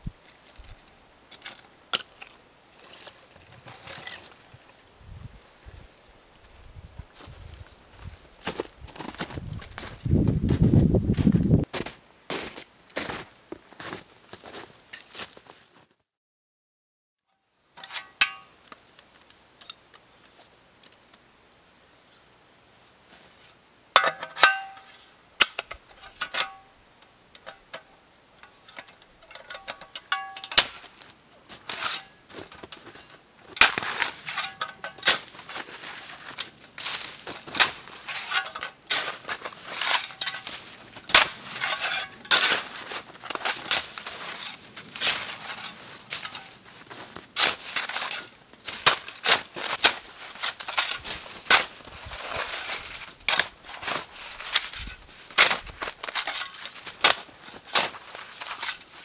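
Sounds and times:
shovel scraping crusty snow: 30.6 - 59.0.

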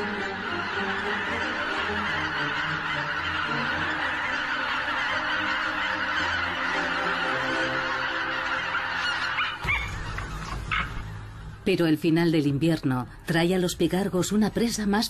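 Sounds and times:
geese honking: 0.0 - 11.4.

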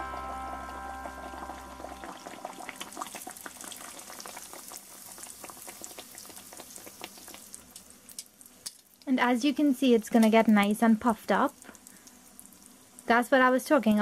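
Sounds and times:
music chord: 0.0 - 3.1
dough deep-frying in oil: 0.0 - 14.0.

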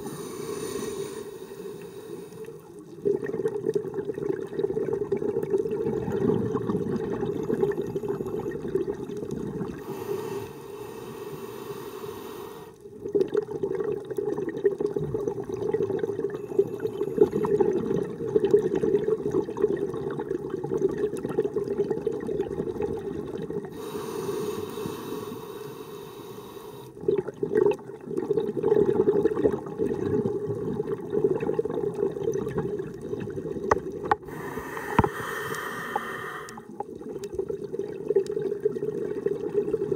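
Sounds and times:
regulator hissing inhale: 0.0 - 2.6, 9.8 - 12.8, 23.7 - 27.0, 34.2 - 36.7
exhaled bubbles gurgling: 0.0 - 39.9.

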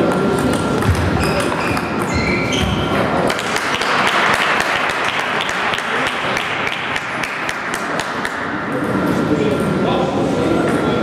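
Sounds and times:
table tennis balls clicking: 0.0 - 8.5
hall and crowd noise: 0.0 - 11.0
shoes squeaking on floor: 0.8 - 3.2.

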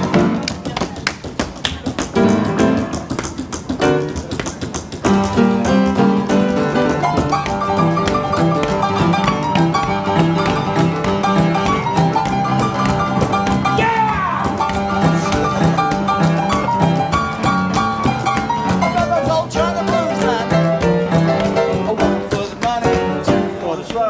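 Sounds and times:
blues piano: 0.0 - 24.0.

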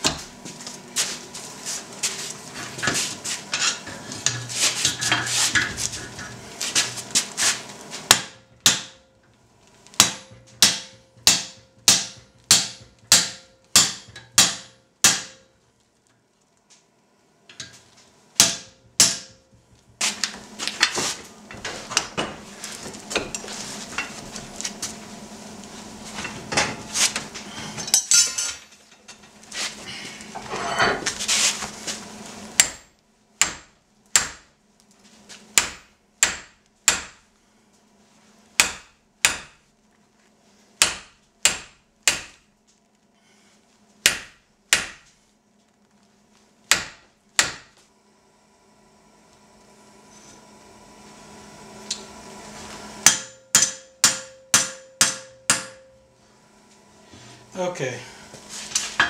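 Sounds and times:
hammer striking hot steel: 8.1 - 9.2, 9.9 - 15.6, 18.4 - 19.6, 23.1 - 24.1, 32.6 - 34.5, 35.6 - 37.2, 38.6 - 39.6, 40.8 - 42.5, 44.0 - 45.1, 46.7 - 47.8, 53.0 - 56.1.

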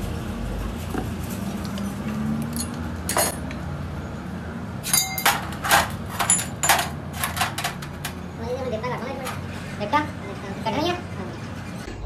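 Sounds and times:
metal tools clinking: 2.4 - 3.6, 4.8 - 8.2.

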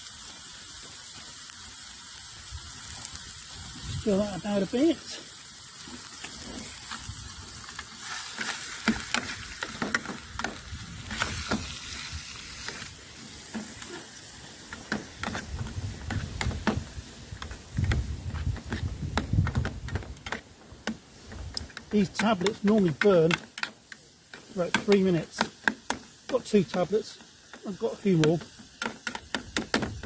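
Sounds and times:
food sizzling in a mess tin: 0.0 - 30.0
clicks and scrapes of stirring: 17.4 - 26.8.

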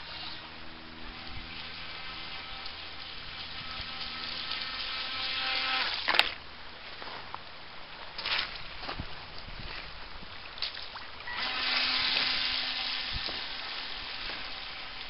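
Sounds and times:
electric motor whining: 0.0 - 6.4, 11.3 - 15.0.

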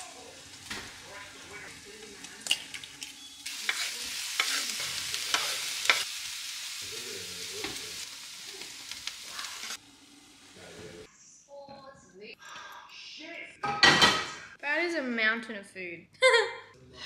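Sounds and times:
food sizzling in frying pan: 0.0 - 11.1.

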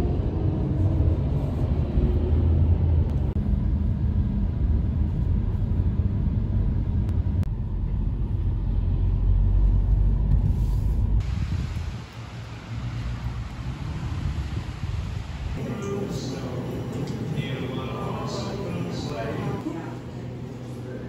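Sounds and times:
car cabin road rumble: 0.0 - 15.6.

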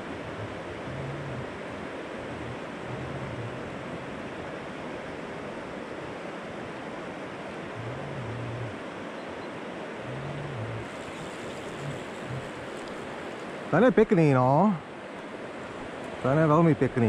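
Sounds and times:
short low hums: 0.0 - 1.6, 2.2 - 4.4, 7.8 - 8.8, 10.1 - 13.1
river rushing over stones: 0.0 - 17.0.

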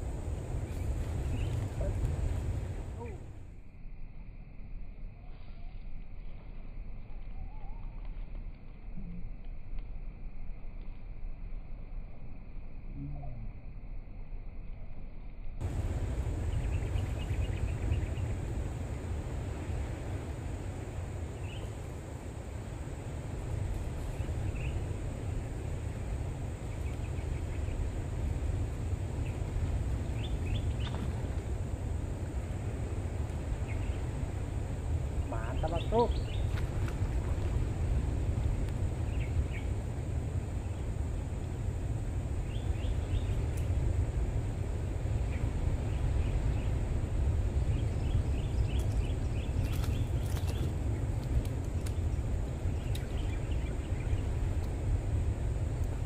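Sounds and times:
insect chirping: 0.0 - 8.0, 15.6 - 56.0
low rumble: 0.0 - 56.0
faint bird chirps: 7.2 - 8.0.

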